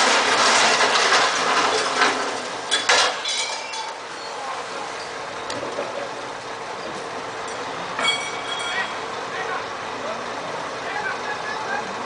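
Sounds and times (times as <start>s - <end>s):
metallic clanks: 7.4s - 9.0s.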